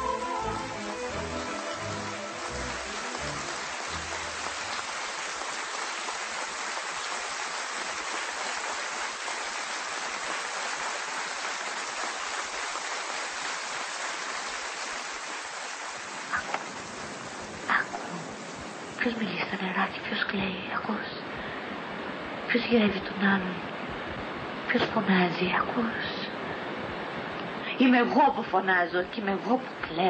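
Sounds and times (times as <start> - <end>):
audience applauding: 1.0 - 15.9.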